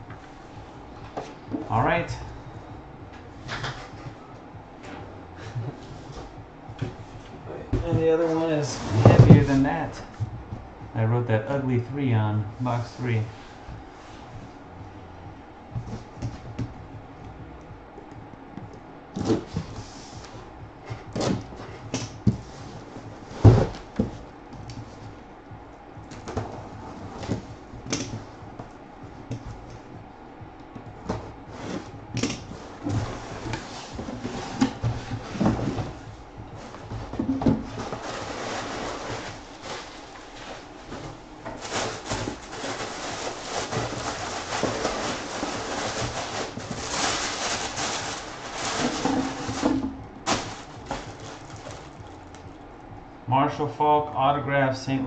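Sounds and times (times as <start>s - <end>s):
knocks and thumps on cardboard box: 20.9s - 24.2s, 30.8s - 39.9s, 41.0s - 52.2s
crinkling paper rustle: 37.7s - 52.5s.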